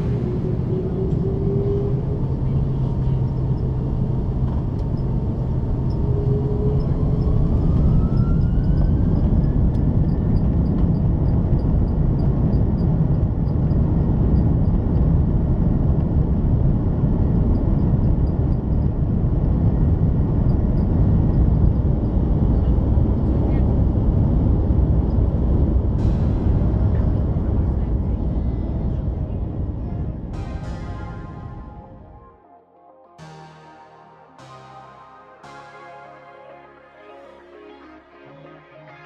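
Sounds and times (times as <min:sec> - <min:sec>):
jet engines whining: 0:00.0 - 0:11.5, 0:24.4 - 0:39.0
jet engine and runway rumble: 0:00.0 - 0:32.2.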